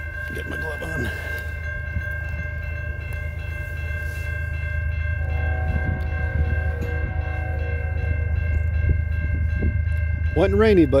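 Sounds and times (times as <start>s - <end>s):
crossing warning bell ringing: 0.0s - 11.0s
train rumble: 0.0s - 11.0s
distant train horn: 5.1s - 9.8s.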